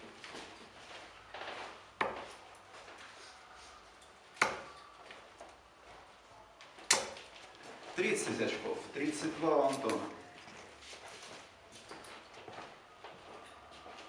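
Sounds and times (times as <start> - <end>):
darts striking dartboard: 4.4 - 4.7, 6.9 - 7.2.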